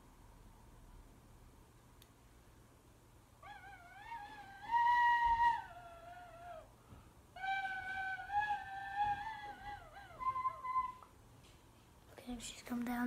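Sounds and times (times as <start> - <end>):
tin whistle notes: 3.4 - 6.7, 7.4 - 11.1.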